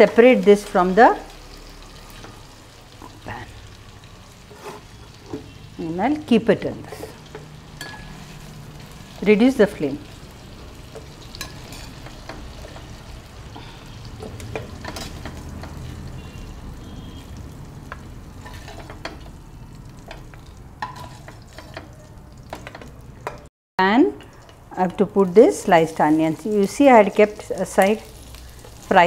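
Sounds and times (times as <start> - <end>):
chicken sizzling in pan: 0.0 - 23.2, 24.2 - 29.0
spatula scraping pan: 4.4 - 5.6, 10.6 - 16.5, 18.4 - 19.4, 20.1 - 22.9.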